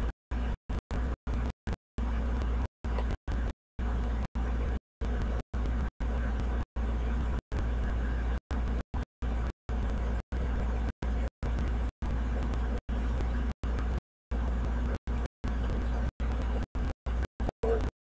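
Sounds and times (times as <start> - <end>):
low hum with hiss: 0.0 - 17.9.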